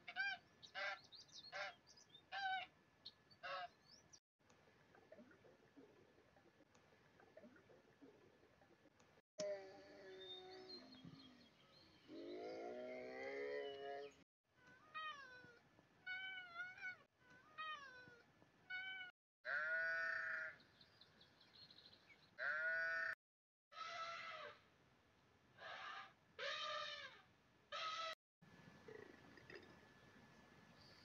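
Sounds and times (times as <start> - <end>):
high-pitched animal cries: 14.7 - 20.5, 23.7 - 24.6, 25.6 - 28.2.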